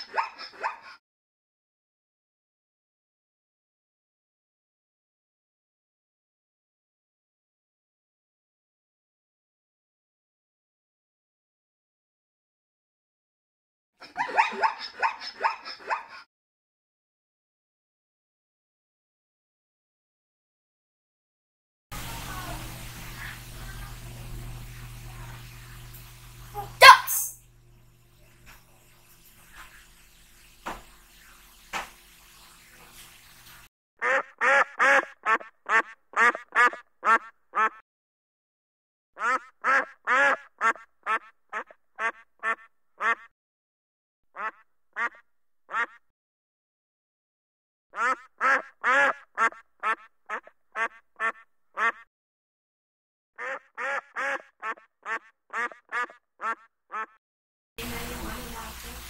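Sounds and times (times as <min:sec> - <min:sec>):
duck quacking: 0:34.0 - 0:37.8, 0:39.2 - 0:43.3, 0:44.4 - 0:46.0, 0:48.0 - 0:52.1, 0:53.4 - 0:57.2.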